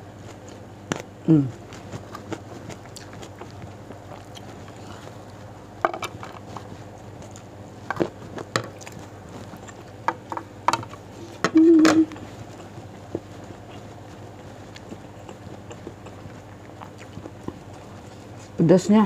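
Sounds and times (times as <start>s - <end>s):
wet mouth smacks and chewing: 0.3s - 5.4s, 12.1s - 18.1s.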